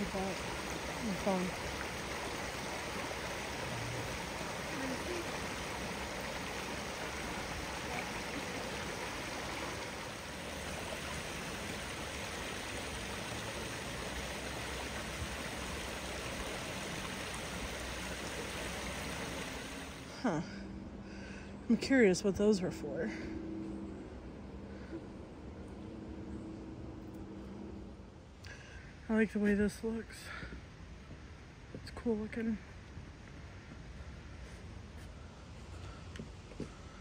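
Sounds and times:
creek rushing over rocks: 0:00.0 - 0:20.1.

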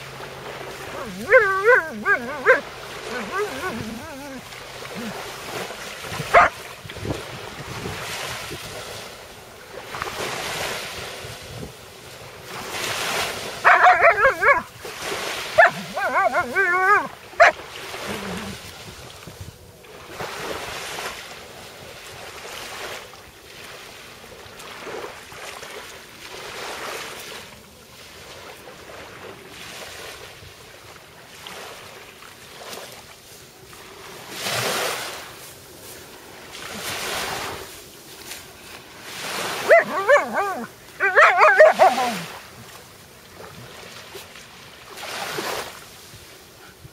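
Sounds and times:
waves washing on shore: 0:00.0 - 0:46.9
dog vocalizing: 0:00.9 - 0:05.2, 0:06.3 - 0:06.5, 0:13.6 - 0:14.7, 0:15.6 - 0:18.6, 0:39.7 - 0:42.4.

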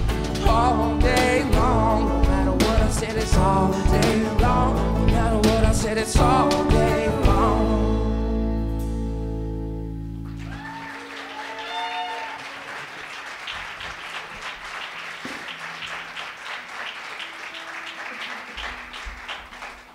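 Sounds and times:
acoustic guitars and bass chord: 0:00.0 - 0:10.5
audience applauding: 0:10.2 - 0:19.9
audience cheering: 0:10.2 - 0:19.9.

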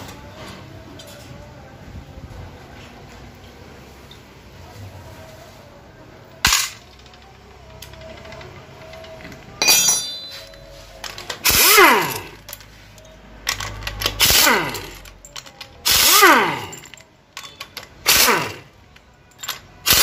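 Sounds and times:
metallic clatter: 0:06.4 - 0:20.0
cordless driver spinning: 0:11.3 - 0:12.6, 0:13.5 - 0:18.8.

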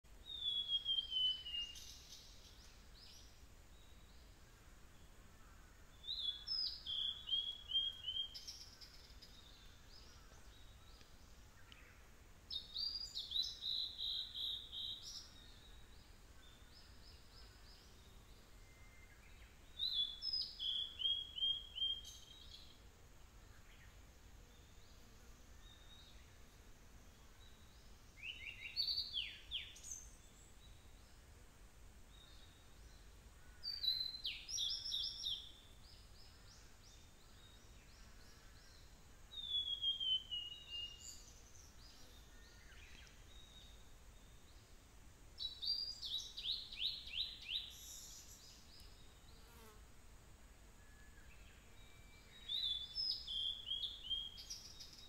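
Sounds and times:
flycatcher singing: 0:33.6 - 0:44.4, 0:51.1 - 0:55.0.

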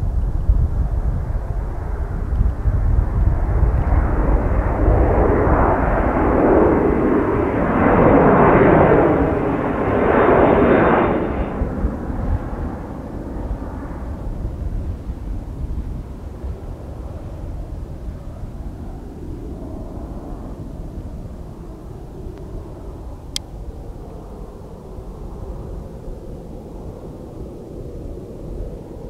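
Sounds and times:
jet airliner passing overhead: 0:00.0 - 0:29.0.

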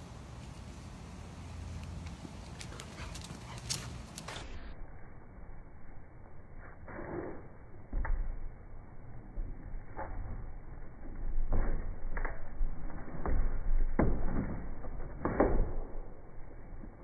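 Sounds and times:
dog paws thumping on wood: 0:02.0 - 0:04.6.

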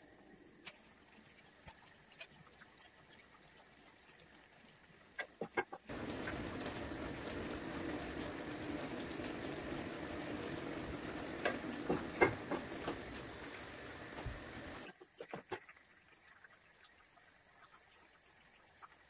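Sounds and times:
livers sizzling in a frying pan: 0:05.4 - 0:16.6
spatula knocking and scraping pan: 0:11.4 - 0:13.1.

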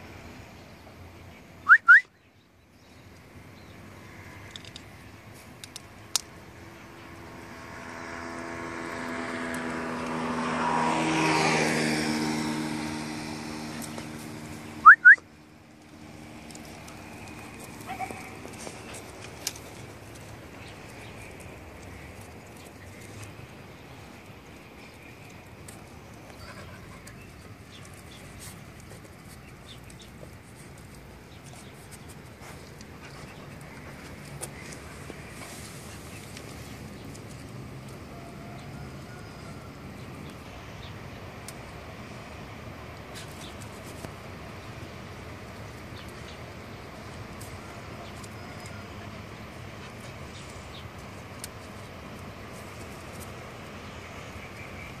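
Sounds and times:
steady background noise: 0:00.0 - 0:55.0
dog claws ticking on asphalt: 0:15.7 - 0:35.6, 0:36.2 - 0:38.0.

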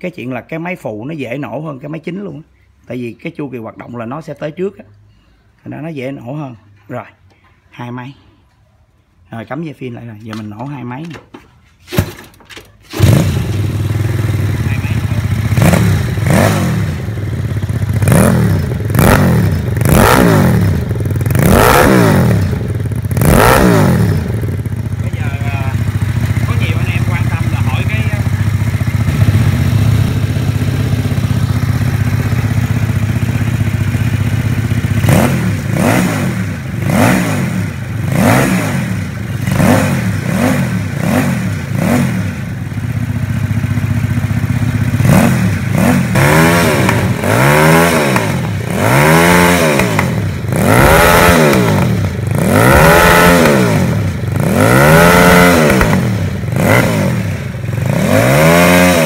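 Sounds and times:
motorcycle engine idling and revving: 0:12.8 - 0:59.0.

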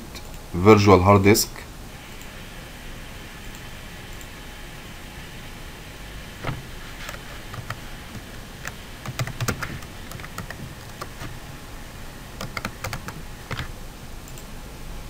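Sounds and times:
steady background hiss: 0:00.0 - 0:15.0
keyboard typing: 0:06.4 - 0:14.4.

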